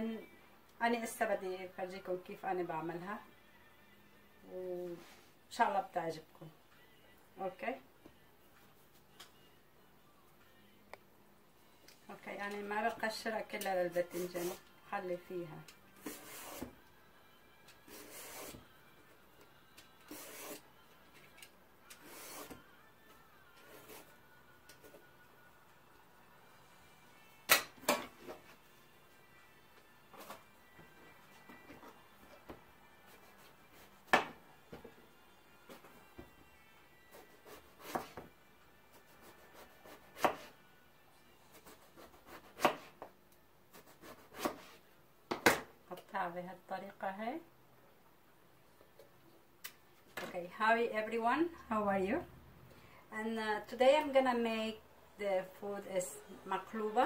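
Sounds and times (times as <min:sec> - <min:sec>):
knife slicing eggplant: 0:20.1 - 0:20.6, 0:37.1 - 0:38.2, 0:38.9 - 0:40.6, 0:41.5 - 0:43.1, 0:43.7 - 0:44.8
vegetable peeler scraping skin: 0:20.1 - 0:20.6.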